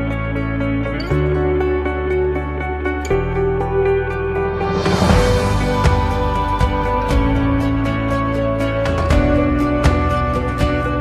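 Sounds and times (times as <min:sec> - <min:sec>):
background music held tones: 0:00.0 - 0:11.0
rushing swell: 0:04.4 - 0:08.1.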